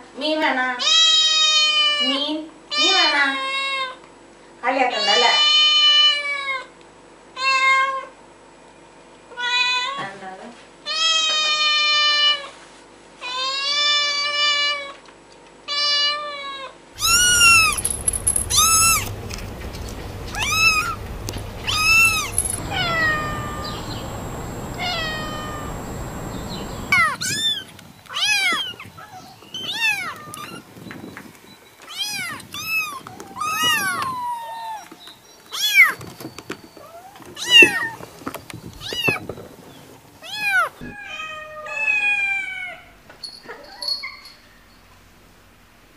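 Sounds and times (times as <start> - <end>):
kittens mewing high-pitched: 17.0 - 17.8
low background hum: 17.0 - 30.6.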